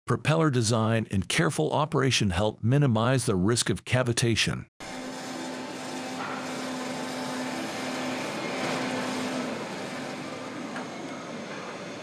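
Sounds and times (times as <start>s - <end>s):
machinery hum: 4.8s - 12.0s.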